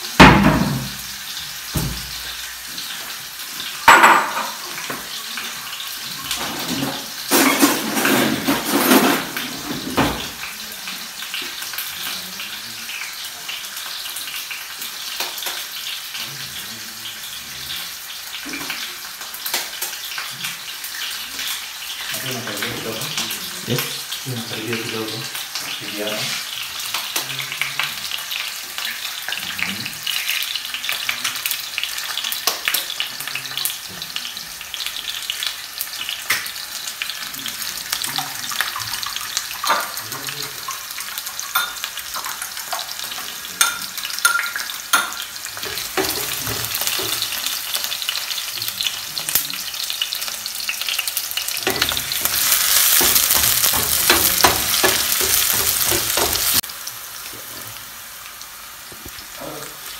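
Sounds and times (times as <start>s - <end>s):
onions sizzling in oil: 0.0s - 59.9s
wooden spoon stirring onions: 45.5s - 48.4s, 51.0s - 56.6s.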